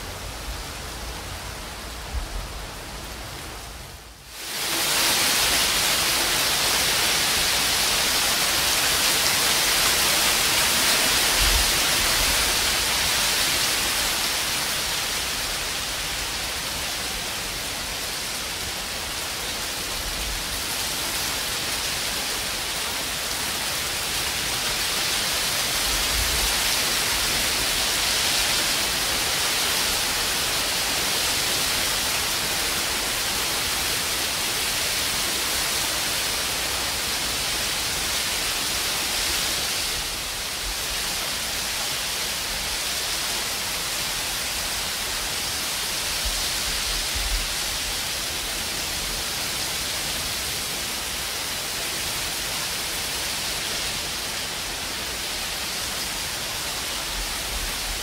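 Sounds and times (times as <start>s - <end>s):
heavy rain and hail: 0.0s - 58.0s.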